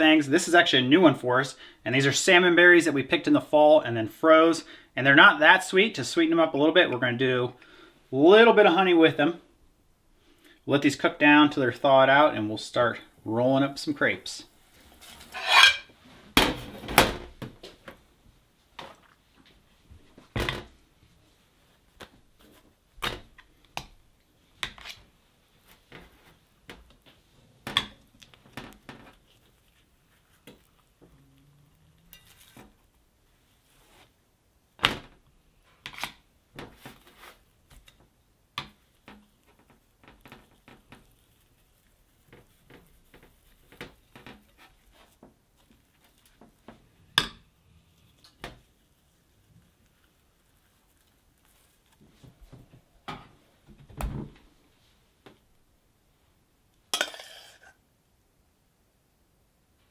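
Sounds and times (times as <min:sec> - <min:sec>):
plates and spoon clinking on steel: 0:15.3 - 0:15.9, 0:57.0 - 0:57.8.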